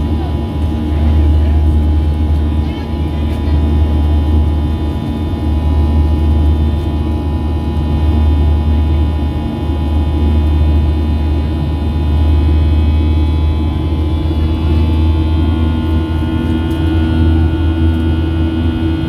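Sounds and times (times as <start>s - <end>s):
jet engines low rumble: 0.0s - 19.0s
steady whining engine tones: 0.0s - 19.0s.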